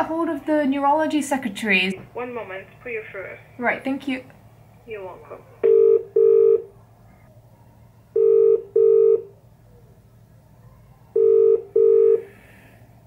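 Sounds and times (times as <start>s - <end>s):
telephone ringing tone: 5.6s - 6.7s, 8.2s - 9.3s, 11.2s - 12.3s.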